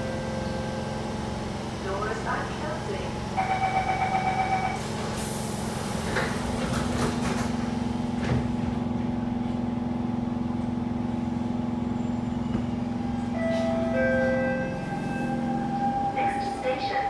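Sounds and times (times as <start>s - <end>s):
train steady hum: 0.0s - 17.0s
train doors sliding shut: 5.0s - 8.6s.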